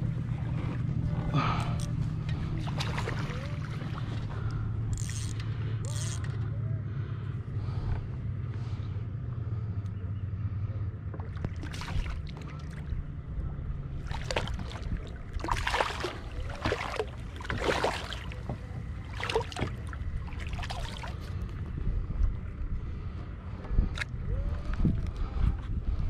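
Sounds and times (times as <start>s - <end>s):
wind rumble on microphone: 0.0s - 26.0s
fish splashing at water surface: 2.6s - 4.2s, 11.4s - 12.8s, 14.0s - 21.3s.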